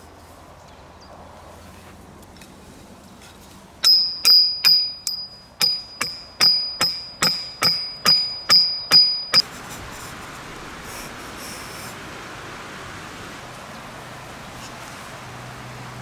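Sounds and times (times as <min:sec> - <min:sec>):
hammer clanging on steel pipe: 0:03.8 - 0:09.4.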